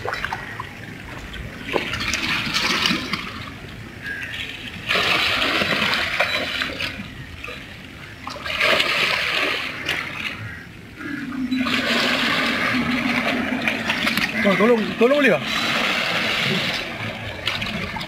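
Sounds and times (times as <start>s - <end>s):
fish thrashing and splashing water: 0.0s - 18.0s
low steady hum: 0.0s - 18.0s.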